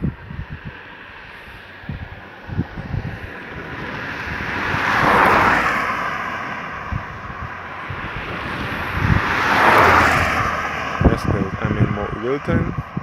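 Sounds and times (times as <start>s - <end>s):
wind buffeting microphone: 0.0s - 13.0s
car tyres hissing on wet road: 0.8s - 11.1s.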